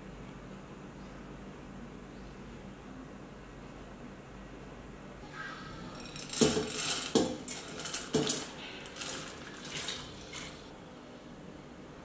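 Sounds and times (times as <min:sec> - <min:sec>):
wet lentils sliding and pattering: 0:06.1 - 0:10.7.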